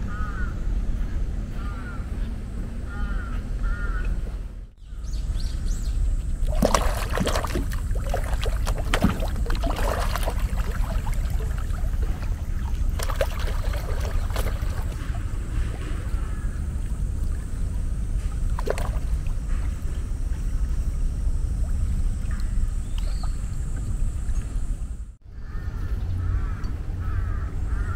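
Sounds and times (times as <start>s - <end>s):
low rumble: 0.0s - 27.9s
crow cawing: 0.1s - 0.6s, 1.6s - 2.1s, 2.9s - 4.2s, 16.2s - 16.6s, 25.4s - 27.9s
water splashing: 6.4s - 25.1s.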